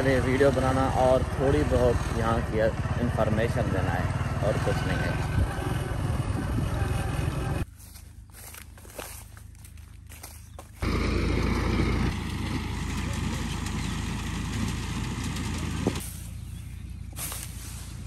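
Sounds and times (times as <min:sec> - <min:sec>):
tractor engine running: 0:00.0 - 0:18.0
footsteps rustling through stubble: 0:07.6 - 0:10.9, 0:15.9 - 0:18.0.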